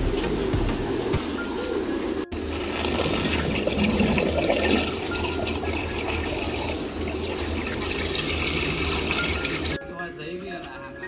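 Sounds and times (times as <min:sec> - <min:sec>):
water gushing into a tank: 0:02.3 - 0:09.8.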